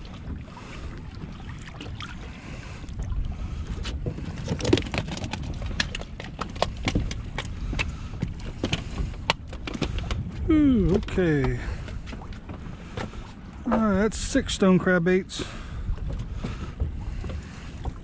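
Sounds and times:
knocks and thuds in boat: 0.0s - 18.0s
wind and water rumble: 0.0s - 18.0s.

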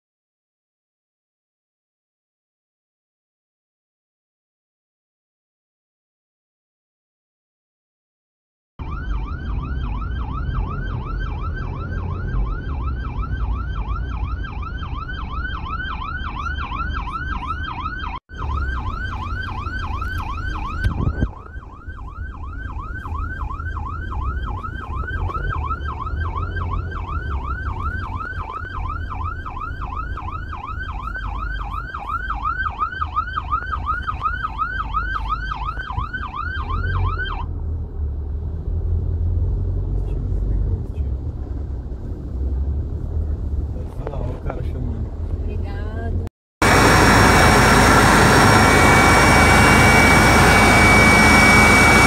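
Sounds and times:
siren yelping: 8.8s - 37.5s, 46.6s - 52.0s
vehicle driving rumble: 18.3s - 52.0s.

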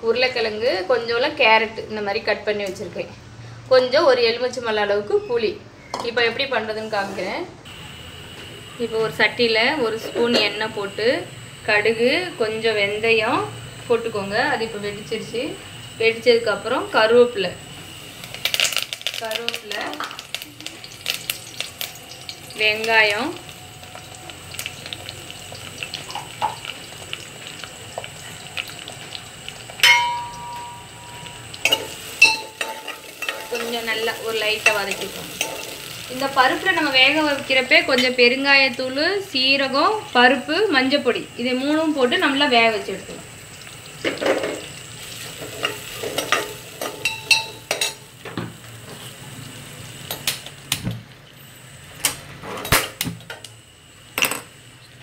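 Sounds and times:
onions sizzling in hot oil: 7.7s - 55.0s
sharp metallic clink: 29.8s - 33.6s.

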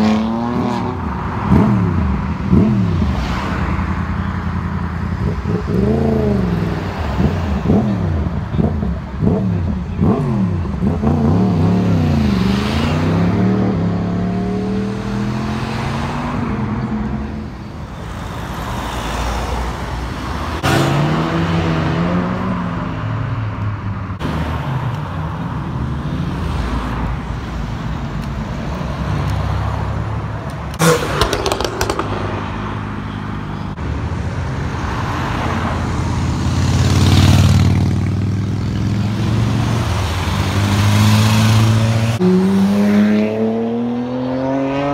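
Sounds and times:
car engines revving past: 5.2s - 17.5s, 28.8s - 33.8s, 34.7s - 44.9s
sharp exhaust pops: 30.7s - 33.1s.

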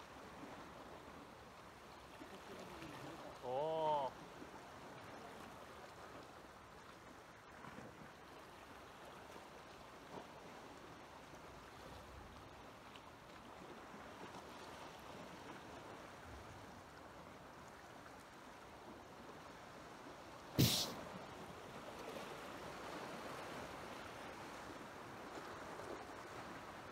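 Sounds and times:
sea water washing against rocks: 20.6s - 21.2s.

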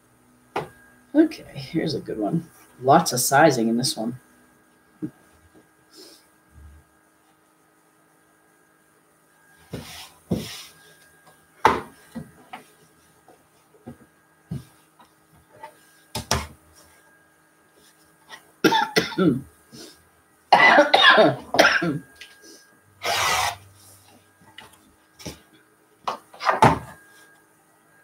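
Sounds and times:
woman coughing: 18.6s - 19.5s, 20.5s - 22.0s.

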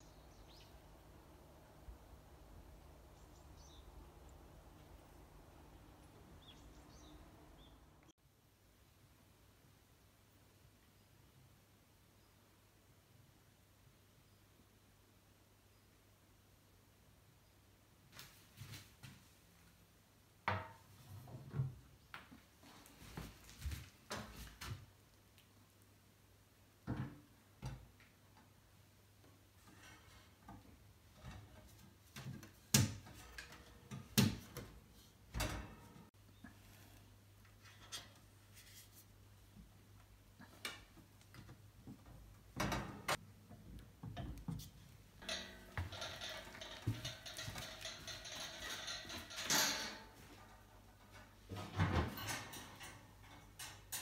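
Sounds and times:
heater knocking and clunking: 29.7s - 36.1s, 40.6s - 54.0s
metal tray clanking on wooden floor: 35.4s - 36.1s, 45.2s - 50.2s.

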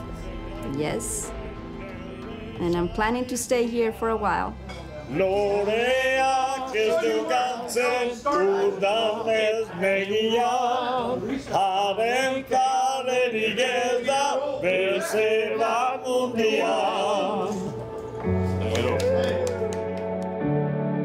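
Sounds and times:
male voices singing together: 5.1s - 19.6s.

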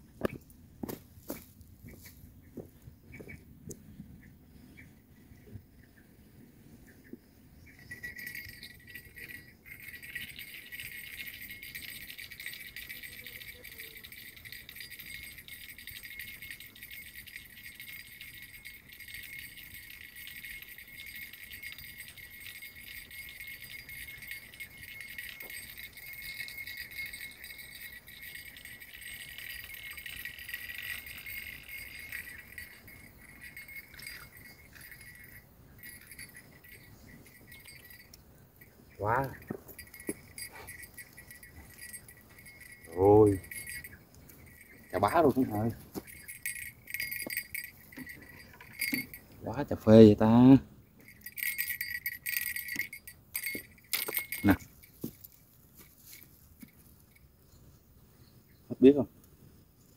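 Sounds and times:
fishing reel whirring and rattling: 8.0s - 38.1s, 46.1s - 49.2s, 51.0s - 54.5s.

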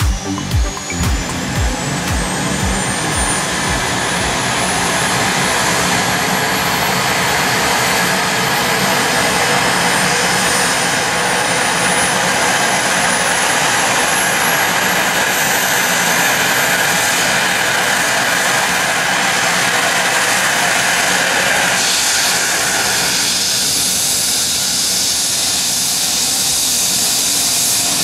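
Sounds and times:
helicopter rotor spinning up: 0.0s - 15.8s
high turbine whine: 0.0s - 28.0s.

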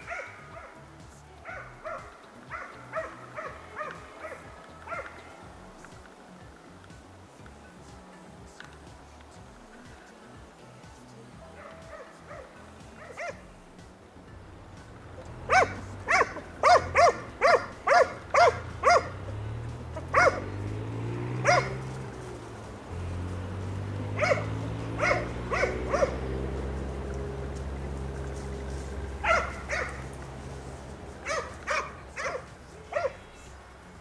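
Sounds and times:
hound barking: 0.0s - 5.9s, 11.4s - 13.8s, 15.2s - 33.5s.

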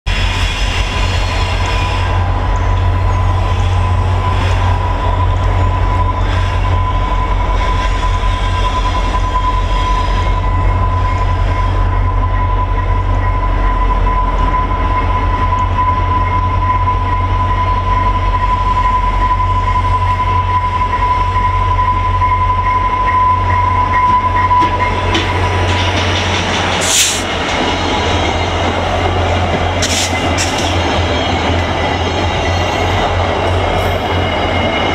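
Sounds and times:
high-pitched squeal: 0.1s - 34.9s
locomotive engine rumble: 0.1s - 34.9s
sharp hissing noise: 26.8s - 27.4s, 29.8s - 30.6s.

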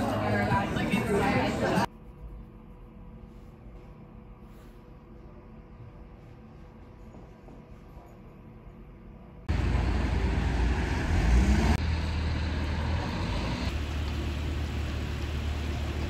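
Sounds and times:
street traffic: 0.0s - 1.9s, 9.5s - 16.0s
vehicle engine rising: 9.5s - 16.0s.

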